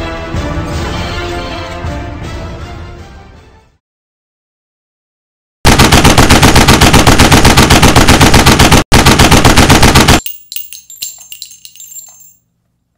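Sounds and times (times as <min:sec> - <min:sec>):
machine-gun fire: 0:05.6 - 0:10.3
light metallic clinks: 0:10.2 - 0:12.7.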